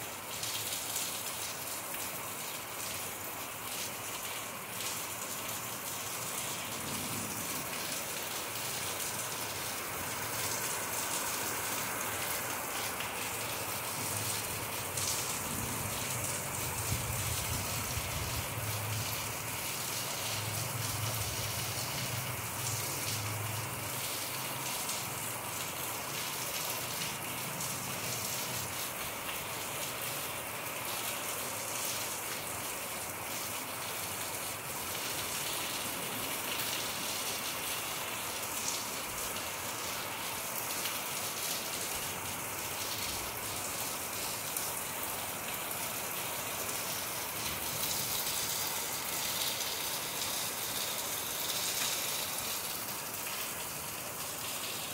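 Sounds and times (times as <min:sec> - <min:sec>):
rain falling on leaves: 0:00.0 - 0:54.9.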